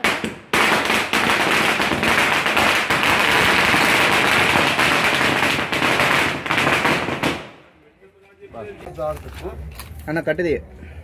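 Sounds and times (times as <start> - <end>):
firecrackers crackling: 0.0 - 7.8.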